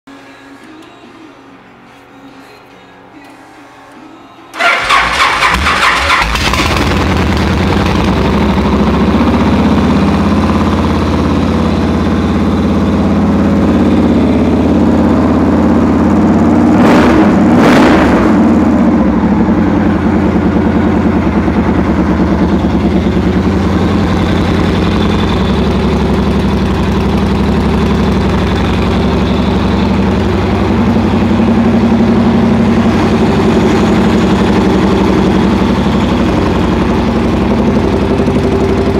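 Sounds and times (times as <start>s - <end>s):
motorcycle engine idling: 4.6s - 16.7s, 18.6s - 38.9s.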